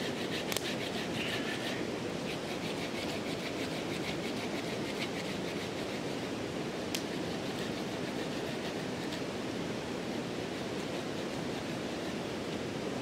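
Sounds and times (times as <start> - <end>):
campfire crackling: 6.9 - 7.2.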